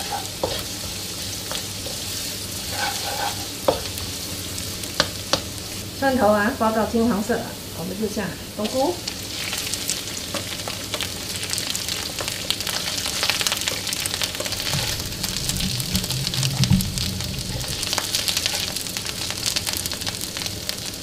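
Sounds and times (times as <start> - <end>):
food sizzling in a wok: 0.0 - 21.0
low hum: 14.4 - 19.4.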